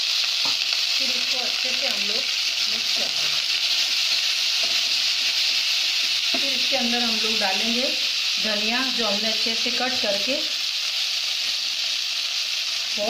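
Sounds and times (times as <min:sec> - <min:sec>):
spiced oil sizzling in a pan: 0:00.0 - 0:13.0
spatula stirring: 0:02.5 - 0:06.7.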